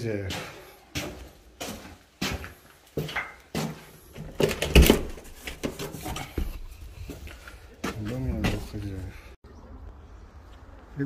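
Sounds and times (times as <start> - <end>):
door knocking and rattling: 4.3 - 5.8.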